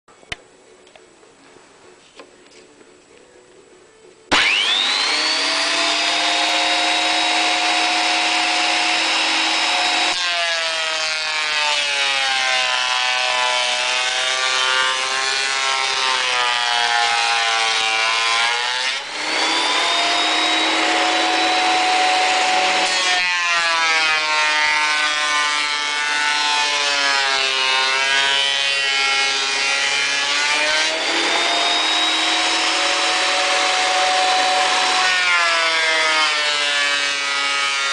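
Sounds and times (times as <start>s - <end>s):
jointer planer motor whine: 4.3s - 11.8s, 18.8s - 37.8s
boards being planed: 4.3s - 37.9s.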